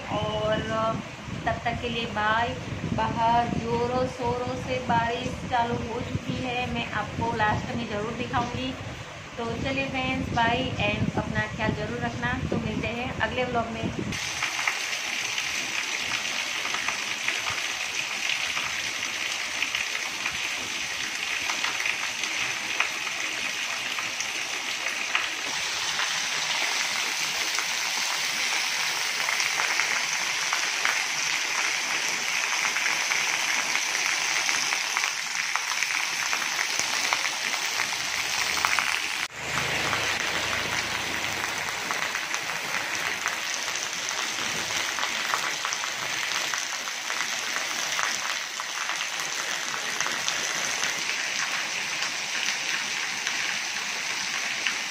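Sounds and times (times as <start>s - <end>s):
heavy rain on paving: 14.1s - 54.9s.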